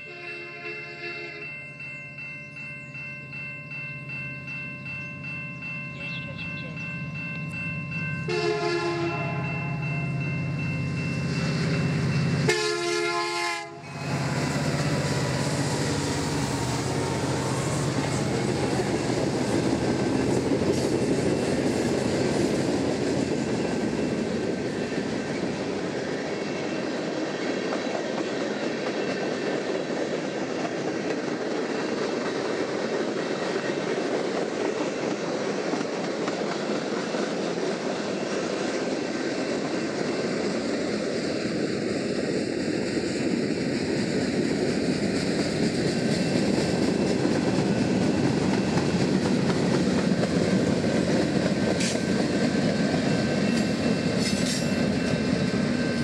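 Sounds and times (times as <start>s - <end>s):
locomotive air horn: 0.0s - 1.4s, 8.3s - 9.8s, 12.5s - 15.3s
train wheels rolling on rails: 1.4s - 56.0s.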